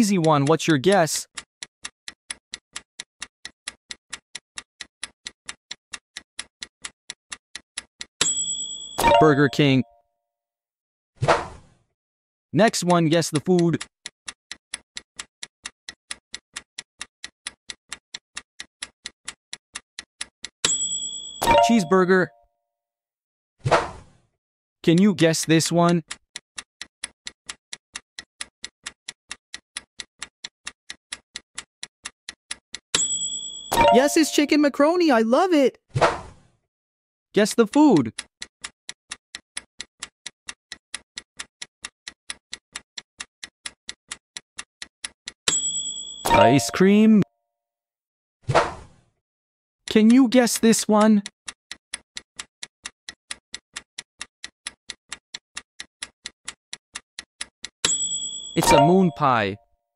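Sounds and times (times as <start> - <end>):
clock-like timer ticks: 0.0 - 9.8, 12.6 - 22.0, 24.9 - 34.5, 37.5 - 47.0, 49.9 - 59.4.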